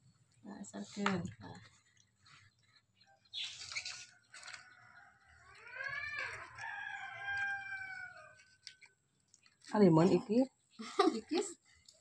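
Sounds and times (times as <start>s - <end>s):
rooster crowing: 4.3s - 8.6s.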